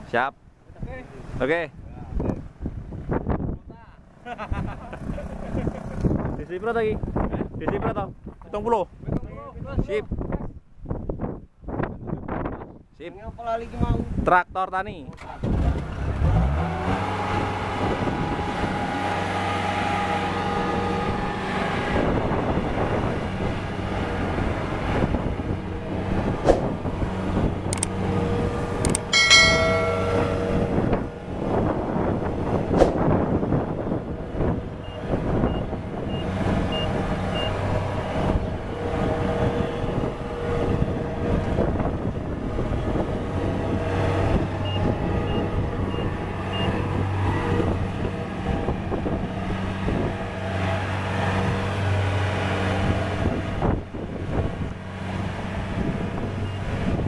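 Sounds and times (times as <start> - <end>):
diesel engine running: 16.0 - 57.0
high ringing tone: 28.9 - 31.2.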